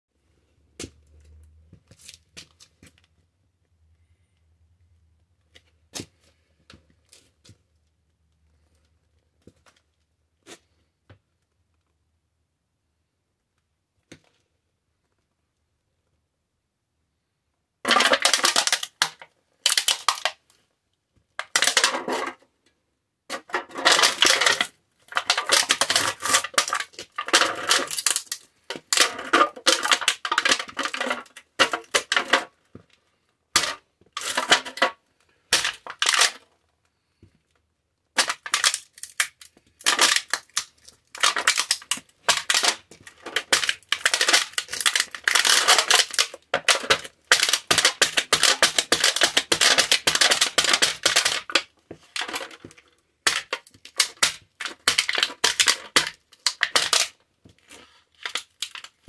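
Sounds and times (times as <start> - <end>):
can crushed under boot heel: 17.8 - 20.4, 21.4 - 22.4, 23.3 - 32.5, 33.6 - 36.4, 38.2 - 57.2.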